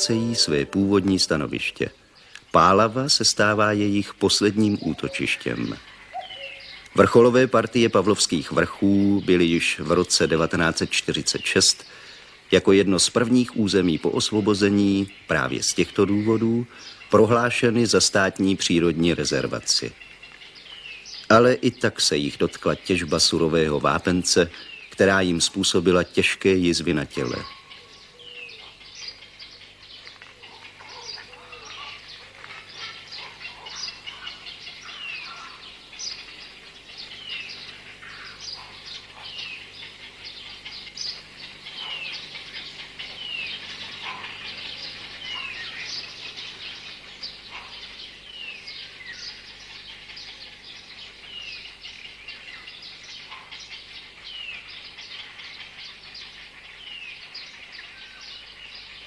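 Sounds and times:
songbirds chirping: 0:00.0 - 0:59.0.

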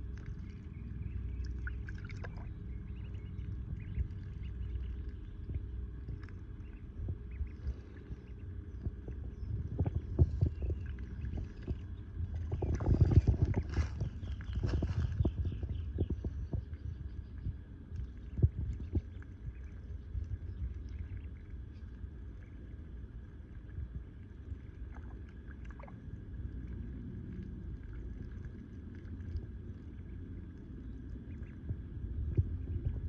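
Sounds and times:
ducklings splashing in water: 0:00.0 - 0:33.0
low rumble: 0:00.0 - 0:33.0
duckling peeps: 0:00.4 - 0:15.8, 0:31.2 - 0:31.6.

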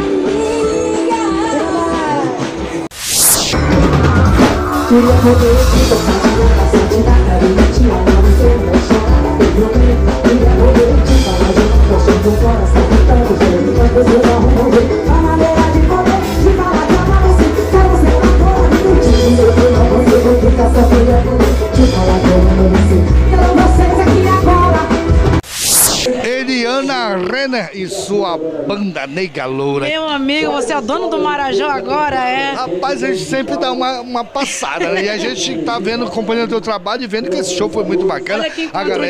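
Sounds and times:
heavy bass: 0:02.9 - 0:26.1
melodic lines: 0:03.2 - 0:08.2
drum kit beat: 0:03.3 - 0:25.5.

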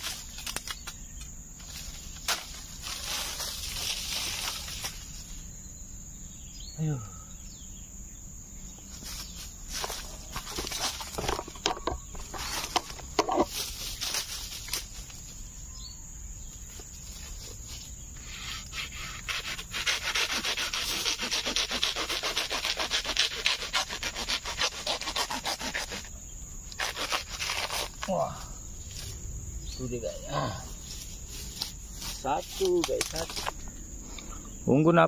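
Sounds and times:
hand saw cutting bamboo: 0:18.2 - 0:28.1.

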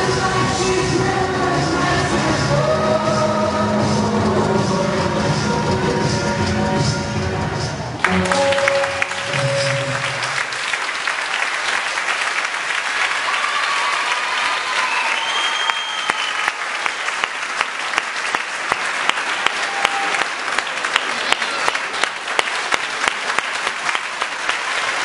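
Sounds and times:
dance music held note: 0:00.0 - 0:10.4
audience applauding: 0:08.0 - 0:25.0.

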